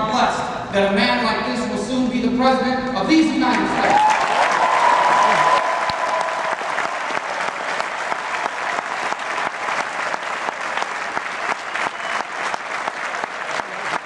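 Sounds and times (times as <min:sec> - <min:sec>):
crowd applauding: 0:03.5 - 0:14.0.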